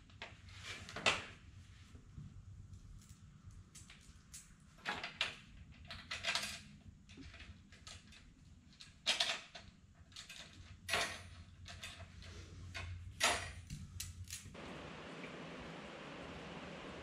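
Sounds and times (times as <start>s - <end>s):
faint low hum: 9.9s - 17.0s.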